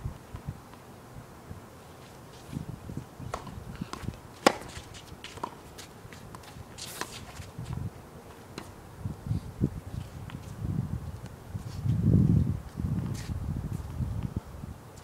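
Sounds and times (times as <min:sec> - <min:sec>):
shoes scuffing on court: 0:02.0 - 0:08.8, 0:12.6 - 0:14.0
racket striking ball: 0:03.3 - 0:05.6
tennis ball bouncing: 0:03.3 - 0:07.5.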